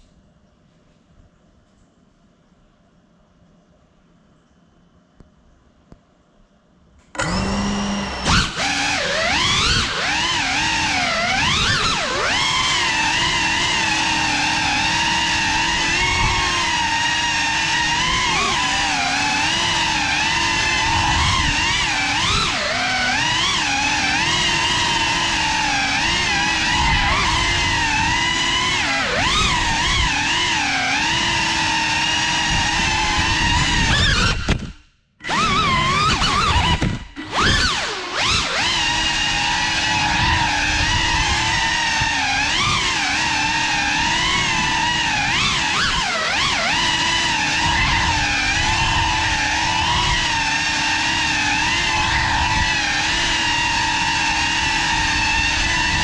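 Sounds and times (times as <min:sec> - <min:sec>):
drone motors whining: 0:07.1 - 0:56.0.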